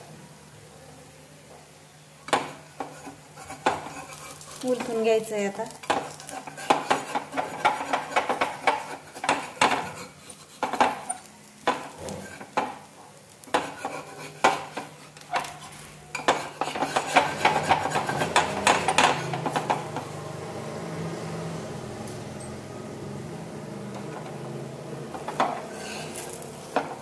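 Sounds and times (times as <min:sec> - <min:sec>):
steady hum: 0:00.0 - 0:27.0
metal spatula scraping iron pan: 0:02.8 - 0:05.1, 0:05.8 - 0:12.8, 0:13.4 - 0:20.1, 0:25.1 - 0:27.0.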